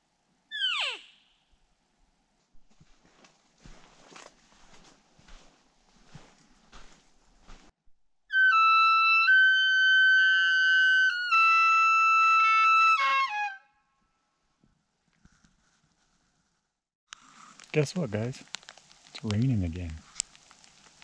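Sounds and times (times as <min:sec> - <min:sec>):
elk bugle call whistle: 0:08.3 - 0:13.7.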